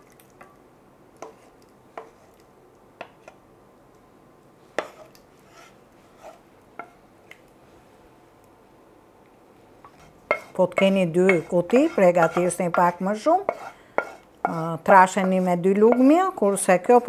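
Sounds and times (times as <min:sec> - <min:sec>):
wooden spatula knocking on pan: 0:10.3 - 0:14.2, 0:15.2 - 0:16.2.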